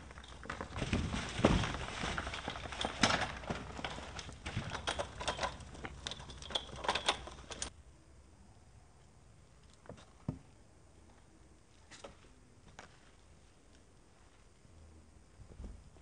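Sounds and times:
bike rattling over ramp: 0:00.0 - 0:07.7.

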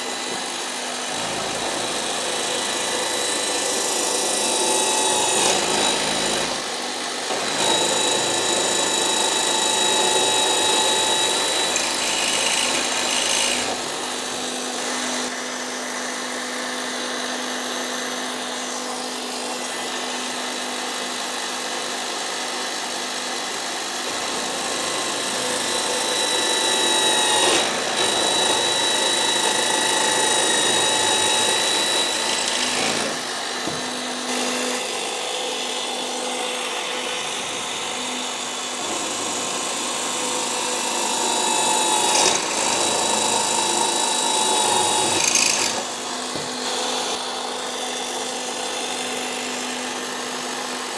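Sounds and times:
drill cutting aluminium: 0:00.0 - 0:50.9
drill press motor whine: 0:00.0 - 0:50.9.

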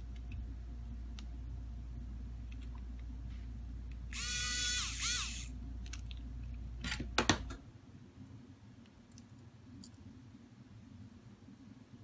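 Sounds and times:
low background hum: 0:00.0 - 0:12.0
electric screwdriver whirring: 0:04.1 - 0:05.5.

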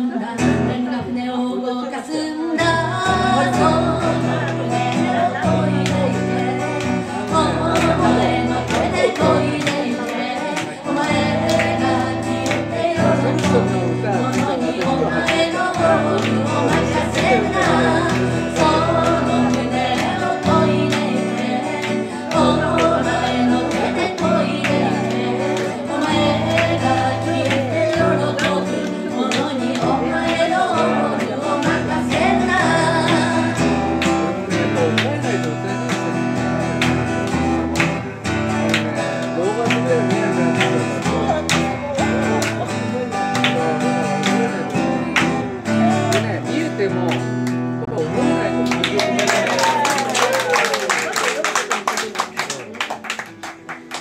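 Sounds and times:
woman singing: 0:00.0 - 0:34.3
acoustic guitar strumming: 0:02.6 - 0:50.2.

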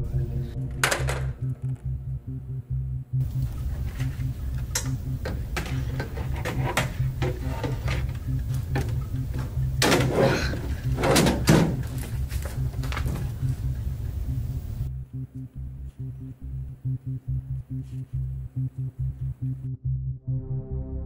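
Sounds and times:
low pulsing drone: 0:00.0 - 0:21.0
scraping rustles: 0:03.3 - 0:14.3.

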